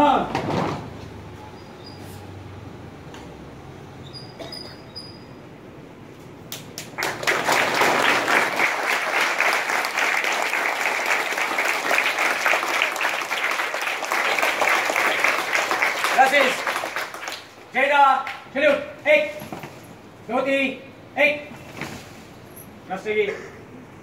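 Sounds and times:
crowd clapping: 6.5 - 18.4.

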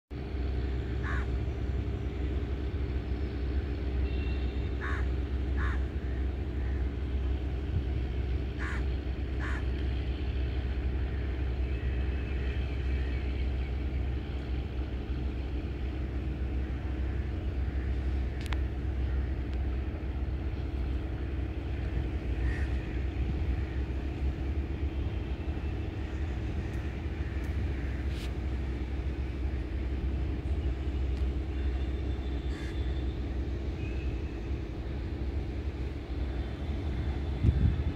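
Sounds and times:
low engine drone: 0.1 - 37.9
crows cawing: 1.0 - 1.3, 4.8 - 6.8, 8.6 - 9.7, 22.4 - 23.0, 32.5 - 32.8.

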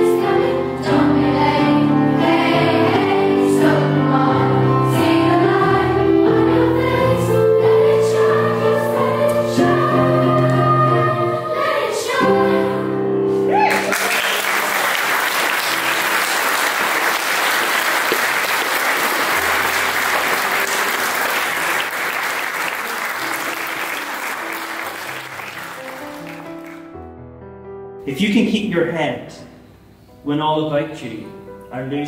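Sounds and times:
choir singing: 0.0 - 13.5
soft music with low notes: 0.0 - 13.7, 18.2 - 32.0
audience applauding: 13.5 - 26.9.

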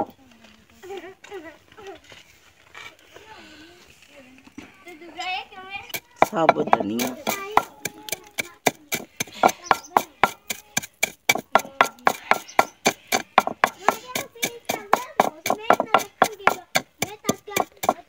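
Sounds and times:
wooden pestle pounding seeds: 5.9 - 18.0.

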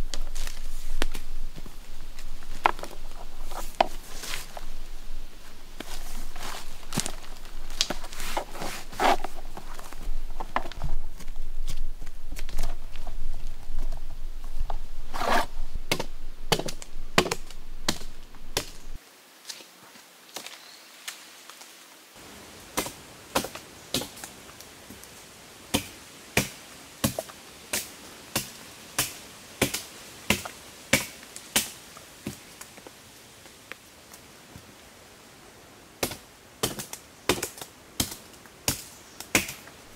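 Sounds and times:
low rumble: 0.0 - 19.0.

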